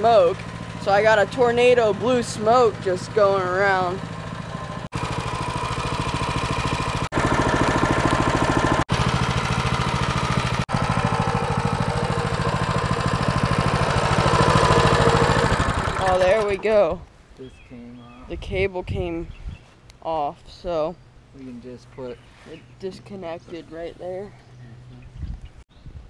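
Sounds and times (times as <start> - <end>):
mini bike engine running: 0.0 - 16.9.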